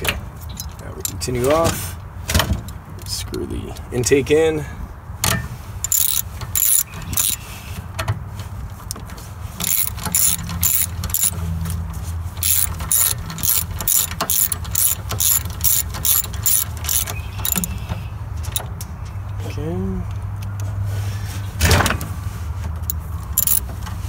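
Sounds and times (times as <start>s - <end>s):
ratchet wrench clicking: 5.8s - 7.4s, 9.6s - 11.4s, 12.4s - 17.8s, 22.9s - 23.6s.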